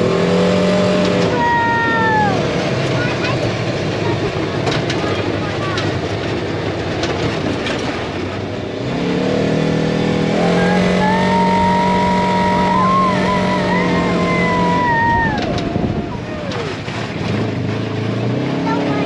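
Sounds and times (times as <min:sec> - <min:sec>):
vehicle engine droning: 0:00.0 - 0:19.0
rushing noise: 0:10.0 - 0:17.7.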